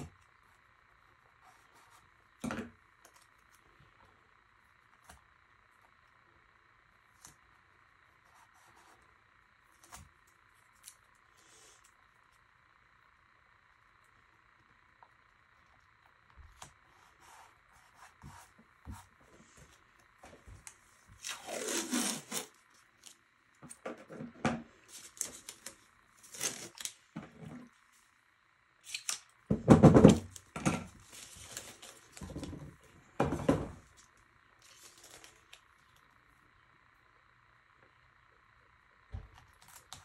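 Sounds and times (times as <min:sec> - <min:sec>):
faint steady hum: 0:00.0 - 0:40.0
scraping and tearing handling noises: 0:20.4 - 0:23.2, 0:24.9 - 0:27.4, 0:30.2 - 0:32.8, 0:34.6 - 0:36.0.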